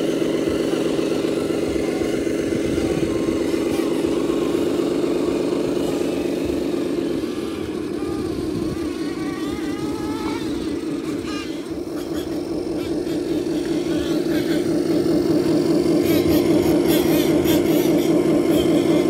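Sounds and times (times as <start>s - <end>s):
toy trucks engine-like drone: 0.0s - 19.0s.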